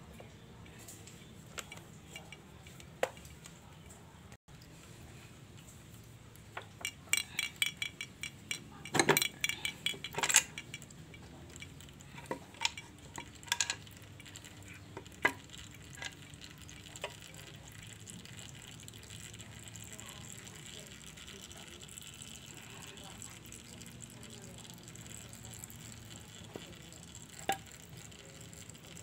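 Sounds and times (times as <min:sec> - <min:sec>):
tools clinking on metal cover: 0:06.6 - 0:13.9.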